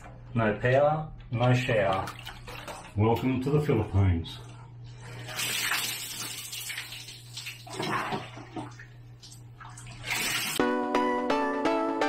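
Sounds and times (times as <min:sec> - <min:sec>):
steady low hum: 0:00.0 - 0:05.3
water poured and splashing: 0:01.9 - 0:03.3, 0:05.1 - 0:10.6.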